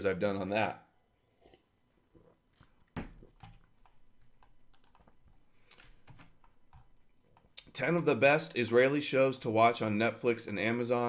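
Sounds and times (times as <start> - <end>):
typing on computer keyboard: 3.4 - 5.2.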